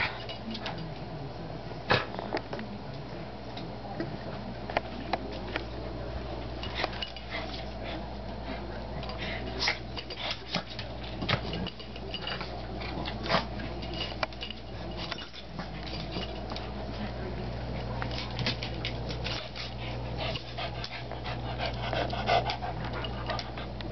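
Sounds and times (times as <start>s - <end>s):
dogs scuffling: 6.4s - 23.8s.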